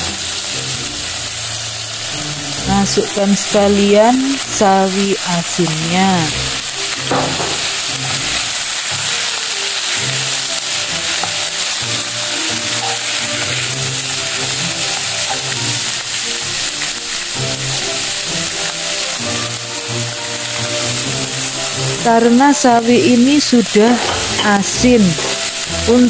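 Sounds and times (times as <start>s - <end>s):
meat sizzling in a pan: 0.0s - 26.0s
soft background music: 0.0s - 26.0s
spatula turning food: 0.3s - 22.1s, 23.3s - 26.0s.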